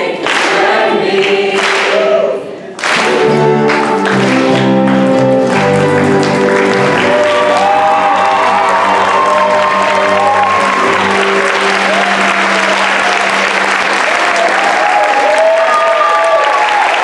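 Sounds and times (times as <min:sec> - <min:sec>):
group of people singing: 0:00.0 - 0:02.8
small band playing folk music: 0:02.9 - 0:07.8.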